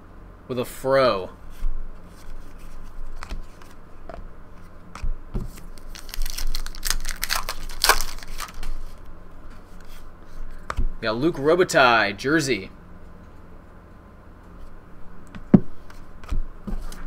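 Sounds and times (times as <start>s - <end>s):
card pack wrapper crinkling: 5.5s - 9.1s.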